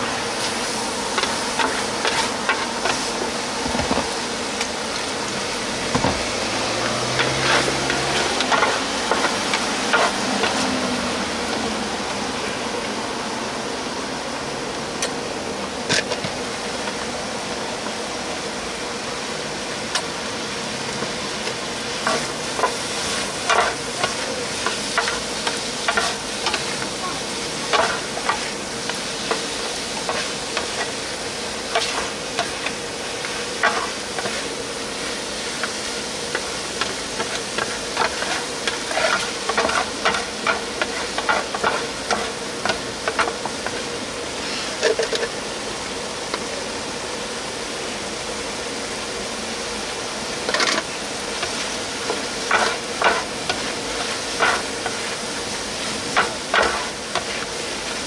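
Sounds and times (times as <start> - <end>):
food sizzling in a hot pan: 0.0 - 12.6, 15.9 - 58.0
metal spatula scraping a pan: 22.0 - 26.8, 35.6 - 43.4, 50.5 - 55.2, 56.1 - 57.5.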